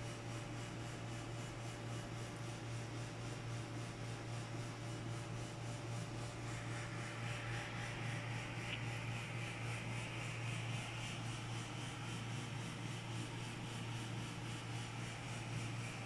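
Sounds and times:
low hum with hiss: 0:00.0 - 0:16.0.

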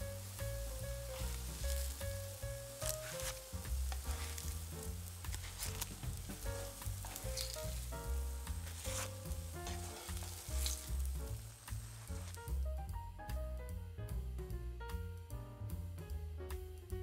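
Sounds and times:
oil sizzling in frying pan: 0:00.0 - 0:12.7
sharp crackles: 0:00.0 - 0:12.8
background music: 0:00.0 - 0:17.0.

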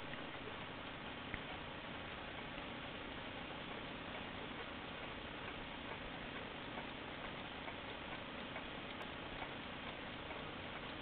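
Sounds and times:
steady hiss: 0:00.0 - 0:11.0
clock ticking: 0:03.5 - 0:11.0.

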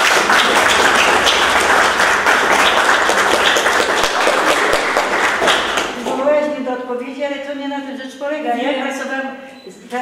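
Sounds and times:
group of people applauding: 0:00.0 - 0:06.2.

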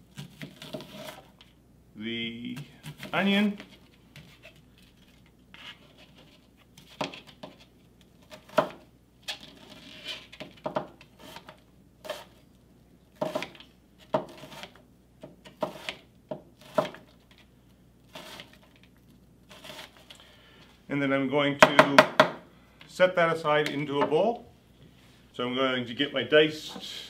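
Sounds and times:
knife chopping on cutting board: 0:08.3 - 0:08.8, 0:13.2 - 0:17.0.

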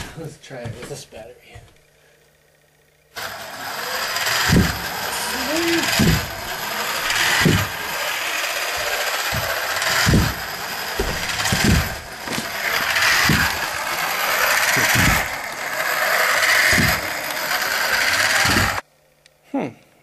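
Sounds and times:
motor and gears grinding whir: 0:01.8 - 0:18.9
low knocks of robot legs: 0:07.1 - 0:07.8, 0:08.8 - 0:15.6.

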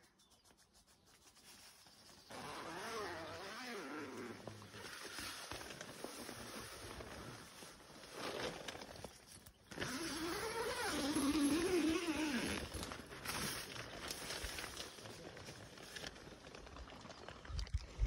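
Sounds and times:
tent fabric rustling: 0:01.4 - 0:17.3
zipper being pulled open: 0:02.3 - 0:09.1, 0:09.7 - 0:13.7.

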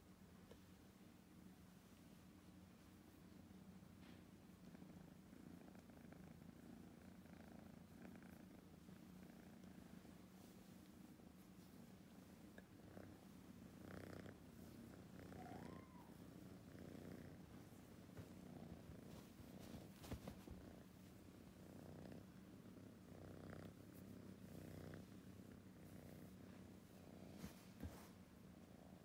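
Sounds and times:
kitten purring: 0:04.6 - 0:10.1, 0:10.8 - 0:29.0.

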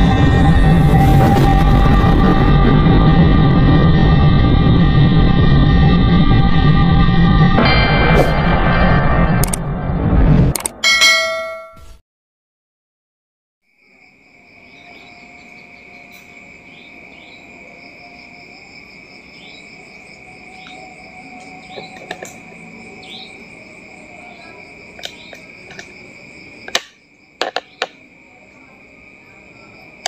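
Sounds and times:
sharp clicks: 0:10.5 - 0:10.8
cricket trilling: 0:13.7 - 0:30.0.

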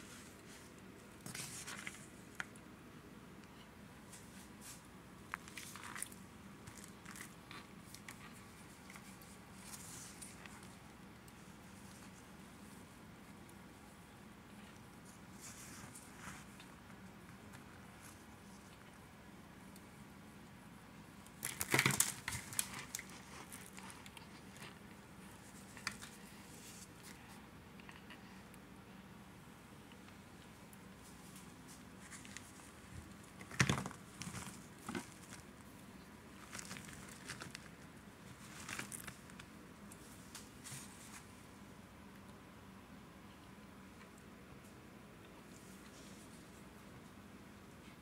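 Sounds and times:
cornstarch crunching and crackling: 0:05.3 - 0:10.6, 0:36.4 - 0:39.4.

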